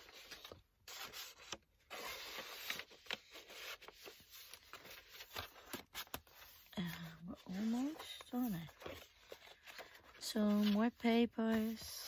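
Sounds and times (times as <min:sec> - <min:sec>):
paper pages rustling: 0:00.0 - 0:12.0.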